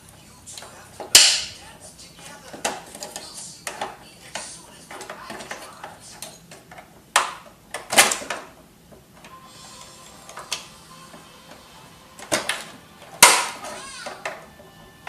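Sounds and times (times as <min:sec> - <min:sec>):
printer parts clicking and scraping: 0:02.5 - 0:08.4.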